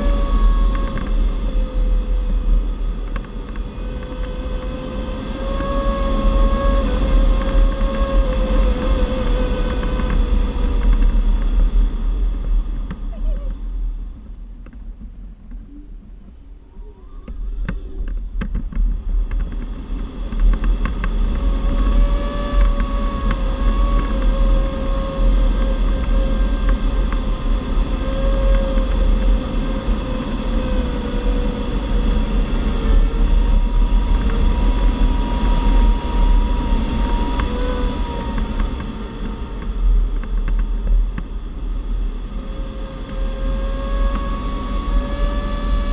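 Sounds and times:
airflow rushing over canopy: 0.0s - 45.9s
faint wavering tone: 15.6s - 18.1s.

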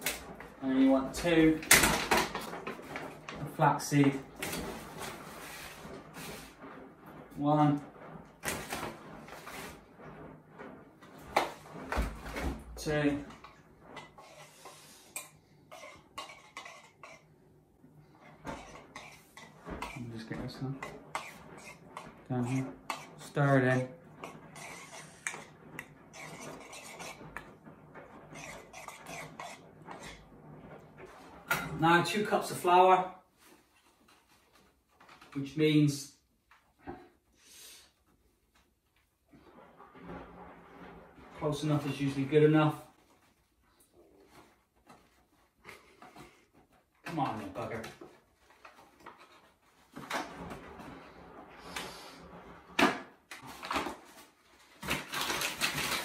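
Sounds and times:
spoon scraping and clinking bowl: 14.2s - 17.3s.

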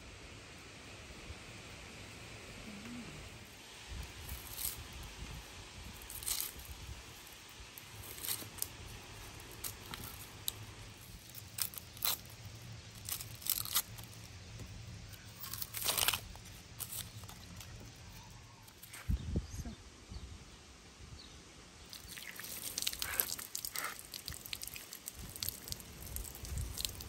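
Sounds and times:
onion skin crackling and tearing: 4.1s - 5.2s, 5.9s - 18.0s, 21.9s - 27.0s.

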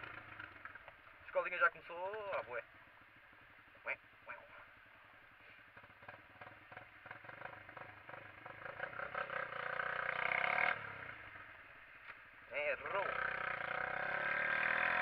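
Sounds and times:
motorcycle engine accelerating: 0.0s - 1.4s, 5.7s - 11.8s, 12.6s - 15.0s.

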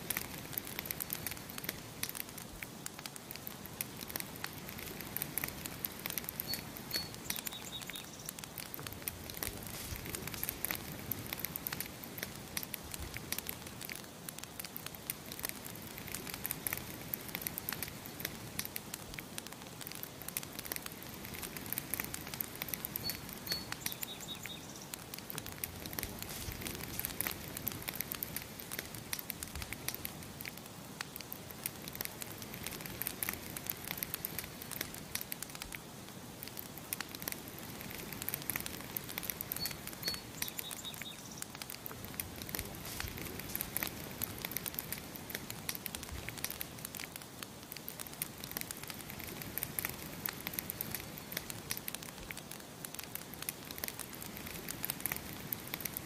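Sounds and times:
campfire crackling and popping: 0.0s - 56.0s
bird chirp: 6.4s - 8.4s, 23.0s - 25.0s, 39.5s - 41.5s.

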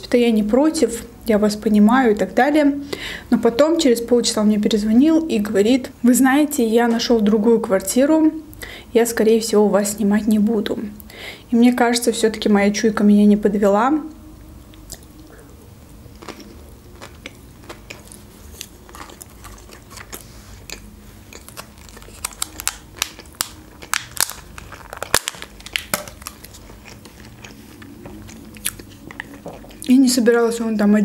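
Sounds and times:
crunchy chewing: 14.7s - 30.0s.

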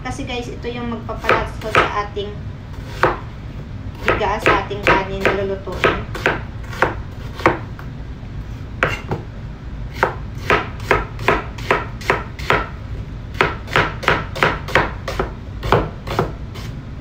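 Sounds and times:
knife chopping on wooden board: 1.2s - 2.0s, 2.8s - 3.2s, 4.0s - 7.7s, 8.8s - 9.3s, 9.9s - 12.7s, 13.3s - 16.7s.

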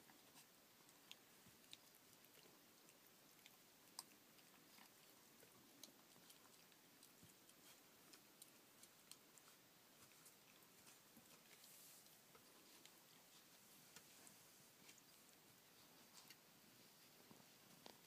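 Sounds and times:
puppies chewing clicks: 0.0s - 11.7s.

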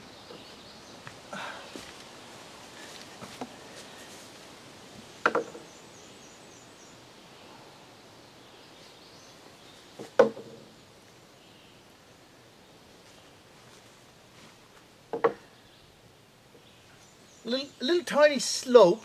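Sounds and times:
knocks on wooden frame: 5.2s - 5.7s, 10.0s - 10.7s, 15.1s - 15.4s.

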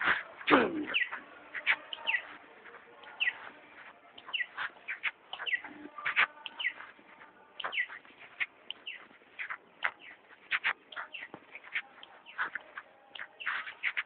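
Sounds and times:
many birds chirping: 0.0s - 14.0s.

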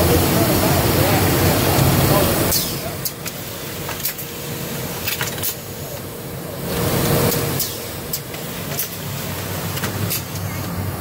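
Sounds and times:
machinery humming: 0.0s - 11.0s
pneumatic actuator clicks and knocks: 7.3s - 10.7s.

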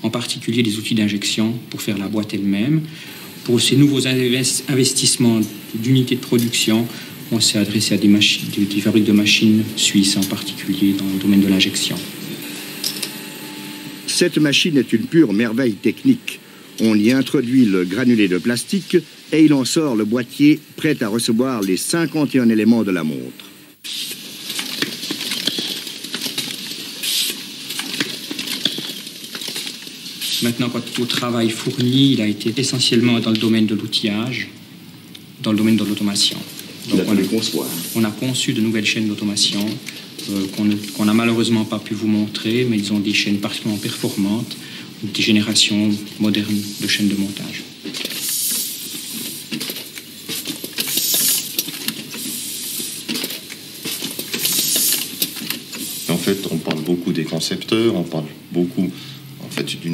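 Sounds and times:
steady hiss: 0.0s - 59.9s
small metal parts clattering: 12.5s - 13.2s, 23.9s - 31.2s, 47.8s - 56.0s
machine clicking: 47.8s - 56.9s.

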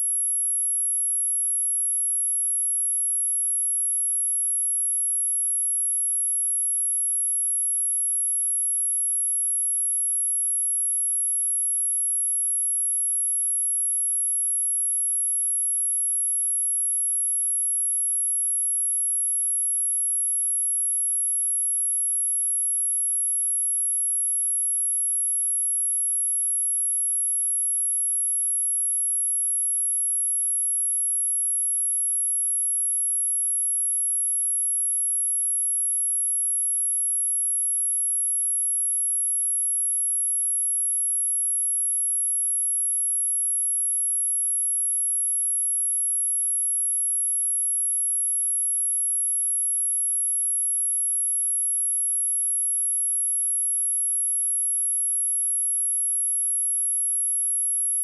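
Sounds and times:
high-pitched sine test tone: 0.0s - 58.0s.

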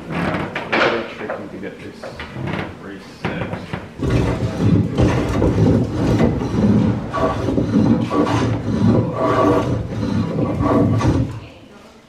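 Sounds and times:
hand plane shaving wood: 4.0s - 11.4s.

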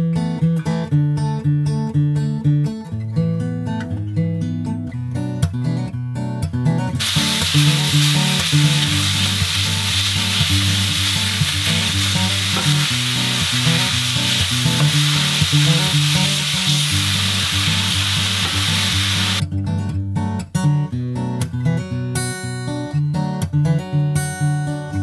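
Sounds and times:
acoustic guitar music: 0.0s - 25.0s
sausage sizzling in a skillet: 7.0s - 19.4s.

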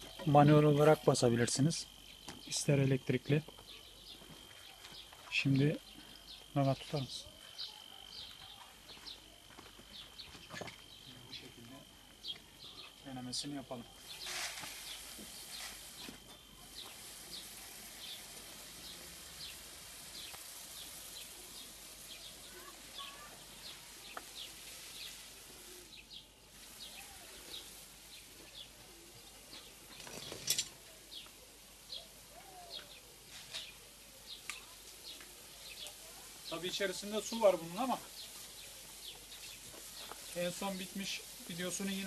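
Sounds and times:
water spraying hiss: 13.2s - 42.0s.

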